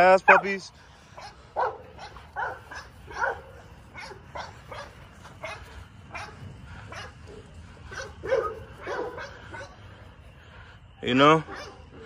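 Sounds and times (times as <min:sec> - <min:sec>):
puppies yapping: 0:01.1 - 0:09.8, 0:11.4 - 0:12.0.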